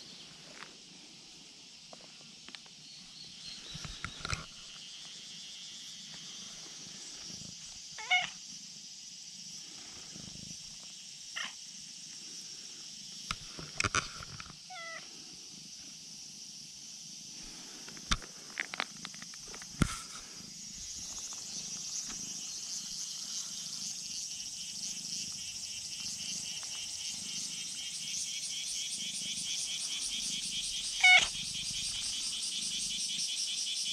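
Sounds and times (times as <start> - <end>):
cat meowing: 8.0 - 8.4, 31.0 - 31.3.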